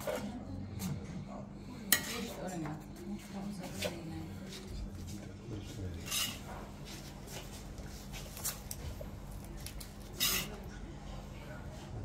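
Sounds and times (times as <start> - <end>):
steady low hum: 0.0 - 12.0
metal spoon scraping ceramic plate: 6.0 - 6.4, 10.2 - 10.6.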